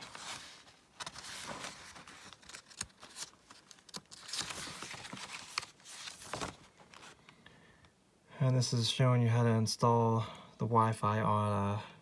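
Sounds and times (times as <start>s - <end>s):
paper pages turning: 0.0s - 7.3s.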